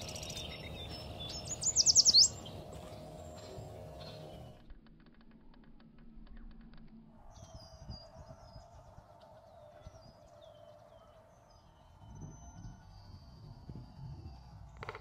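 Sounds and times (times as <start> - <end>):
high bird chirps: 0.0 - 4.6.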